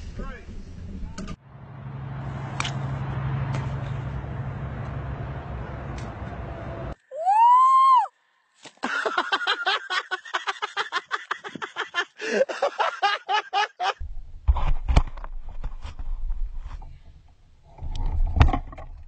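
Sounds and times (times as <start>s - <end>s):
low rumble: 0.0s - 7.0s, 14.0s - 19.0s
person shrieking: 7.1s - 8.1s
person laughing rapidly: 8.8s - 14.0s.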